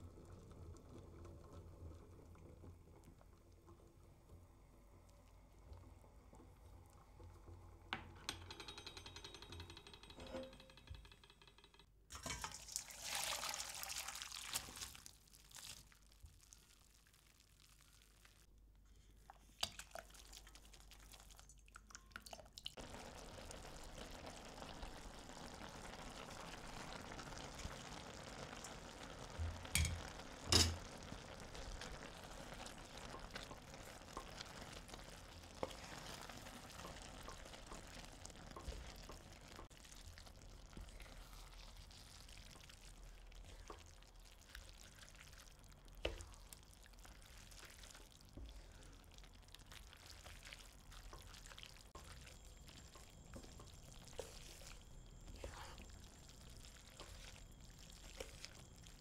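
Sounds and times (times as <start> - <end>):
liquid poured into a pan: 12.1 - 18.5, 19.3 - 59.0
sizzling in a pan: 12.1 - 21.7, 22.3 - 59.0.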